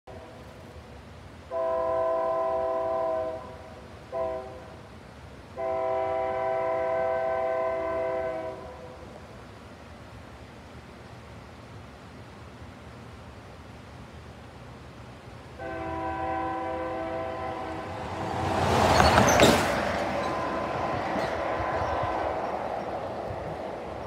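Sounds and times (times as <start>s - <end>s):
locomotive air horn blasts: 1.5s - 4.8s, 5.6s - 9.0s, 15.6s - 18.8s, 20.2s - 22.6s.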